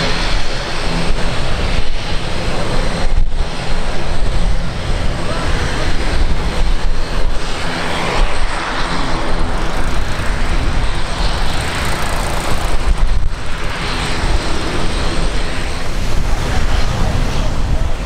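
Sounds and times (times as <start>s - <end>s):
aircraft engines running: 0.0s - 18.0s.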